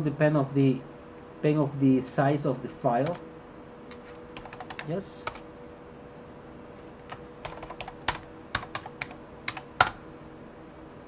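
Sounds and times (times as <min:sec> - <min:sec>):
keyboard typing: 0:03.9 - 0:05.4, 0:07.1 - 0:10.0.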